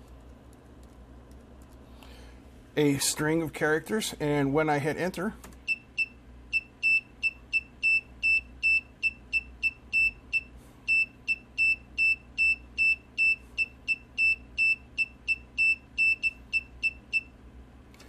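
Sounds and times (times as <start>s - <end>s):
buzzer beeping morse code: 5.7s - 17.3s.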